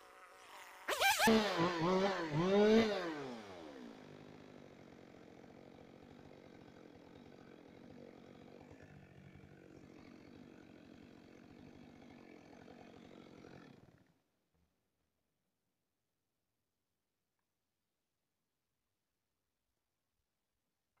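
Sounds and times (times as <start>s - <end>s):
chainsaw idling: 0.0s - 14.1s.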